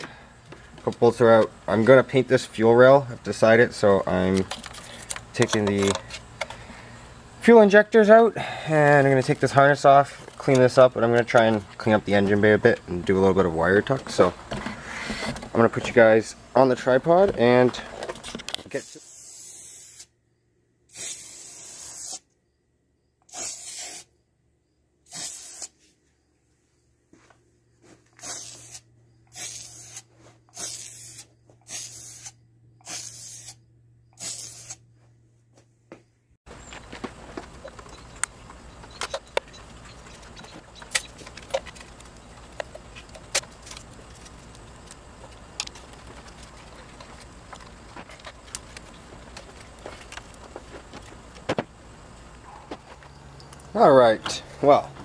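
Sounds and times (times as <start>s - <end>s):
faint steady background noise: 0.0s - 55.0s
aerosol spray can spraying: 18.8s - 20.1s, 20.9s - 22.3s, 23.3s - 24.1s, 25.1s - 25.8s, 28.2s - 33.6s, 34.2s - 34.8s.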